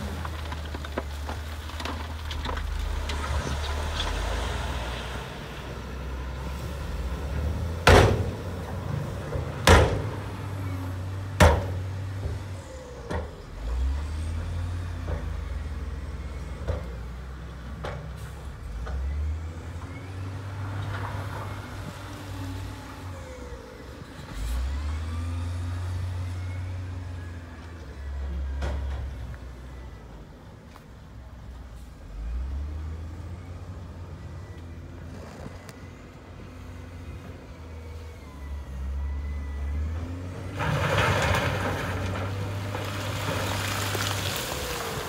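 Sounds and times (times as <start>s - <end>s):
diesel engine droning: 0.0s - 45.0s.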